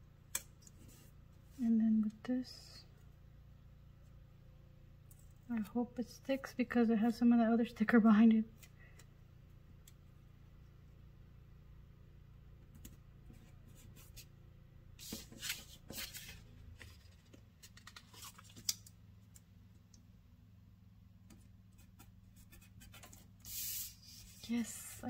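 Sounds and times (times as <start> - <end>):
low room hum: 0.0 - 25.0.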